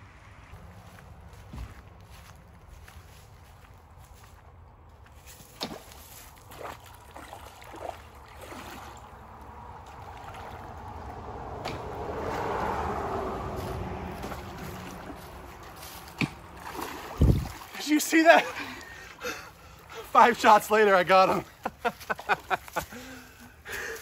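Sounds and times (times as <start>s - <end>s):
water sloshing from wading: 5.2s - 20.6s
sharp water splashes: 5.4s - 22.6s.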